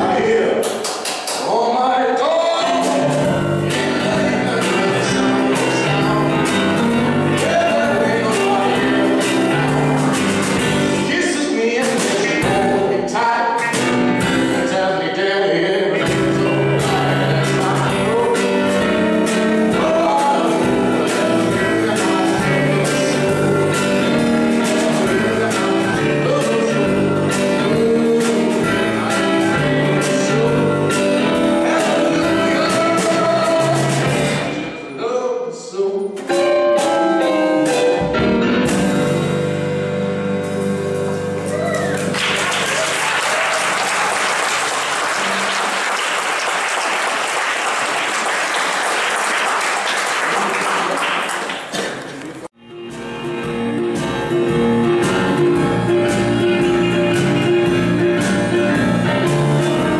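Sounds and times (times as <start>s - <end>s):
man singing: 0.0s - 0.7s, 1.4s - 37.3s
drums and cymbals: 2.7s - 11.1s, 16.0s - 34.7s, 36.8s - 42.1s, 52.7s - 59.9s
electric keyboard: 16.0s - 34.5s, 36.2s - 43.8s, 52.5s - 59.9s.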